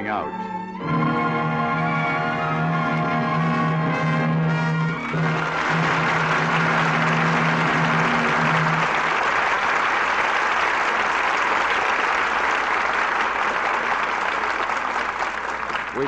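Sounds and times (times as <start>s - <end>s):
orchestra brass chord: 0.2s - 9.3s
audience applauding: 1.0s - 16.0s.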